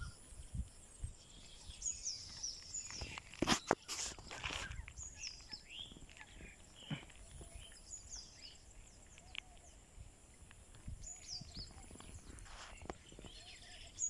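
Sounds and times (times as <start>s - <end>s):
birds whistling and chirping: 0.0s - 9.9s, 10.8s - 14.0s
brief rustle: 2.2s - 7.4s, 11.4s - 13.6s.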